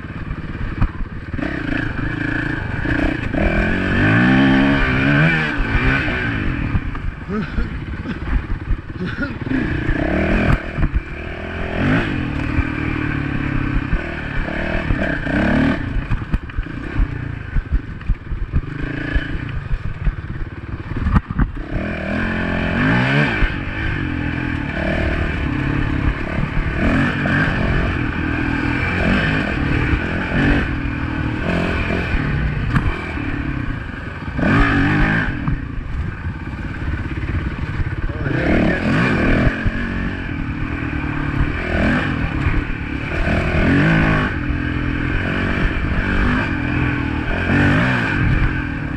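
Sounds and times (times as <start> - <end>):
dirt bike engine revving: 0.0 - 48.9
bike knocking and clattering: 16.1 - 21.6.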